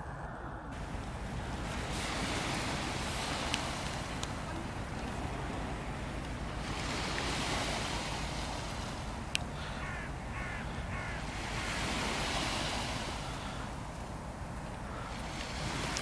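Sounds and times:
surf at the shore: 0:00.0 - 0:16.0
wind: 0:00.0 - 0:16.0
bird calling: 0:07.8 - 0:12.3.

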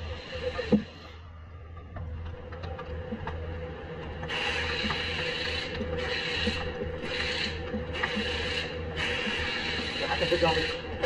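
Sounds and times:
tool whirring and hissing: 0:00.0 - 0:01.2, 0:04.2 - 0:11.0
steady low hum: 0:00.0 - 0:11.0.

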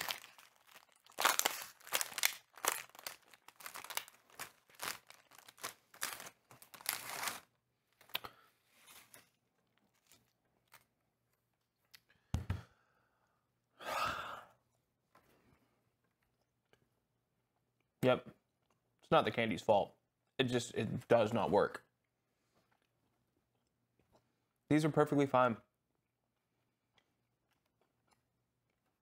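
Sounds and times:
plastic pouch tearing and crinkling: 0:00.0 - 0:07.5.

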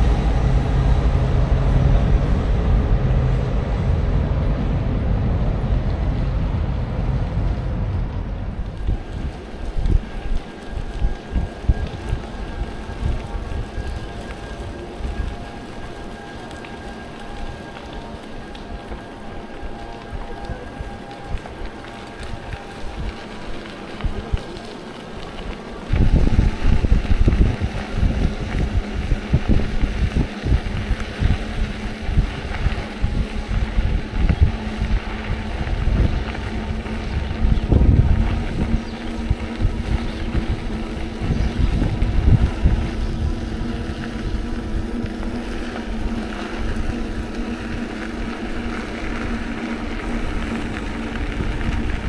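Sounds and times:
steady low hum: 0:00.0 - 0:52.0
wind buffeting microphone: 0:00.0 - 0:52.0.

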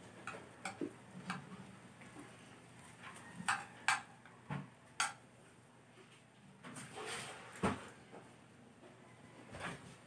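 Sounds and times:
spoon clicking against plate: 0:03.5 - 0:04.1, 0:05.0 - 0:05.2.

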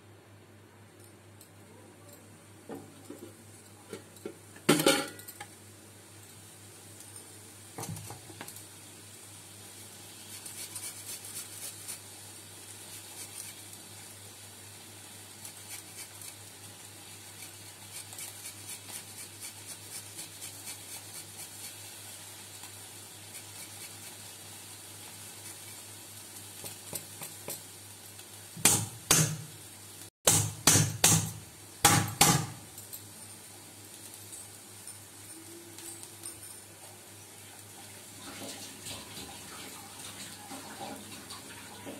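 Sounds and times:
hand grater scraping: 0:10.3 - 0:12.0, 0:17.3 - 0:21.8.

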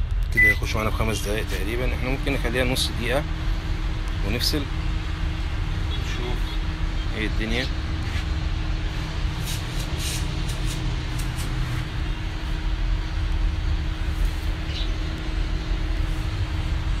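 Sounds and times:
microwave oven hum: 0:00.0 - 0:17.0.

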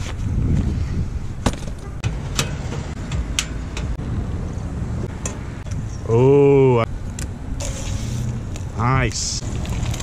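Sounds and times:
steady low rumble: 0:00.0 - 0:06.1.

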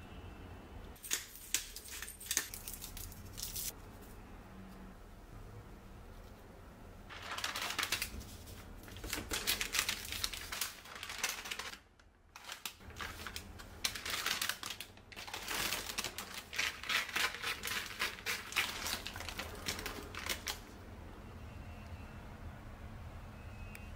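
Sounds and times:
paper crinkling: 0:07.1 - 0:20.8.

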